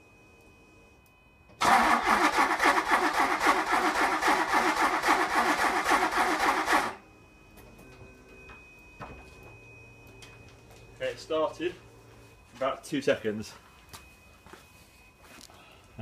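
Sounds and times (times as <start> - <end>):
car engine cranking and starting: 1.6 - 7.0.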